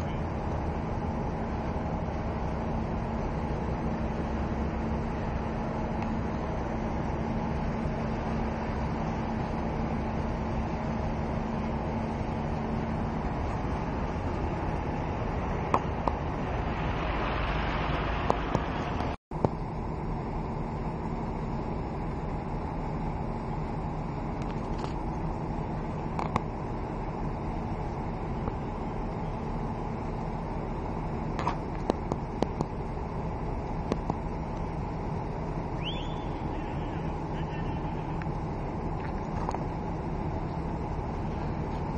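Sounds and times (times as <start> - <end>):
ship engine rumble and hum: 0.0 - 41.9
rushing noise: 11.7 - 19.2.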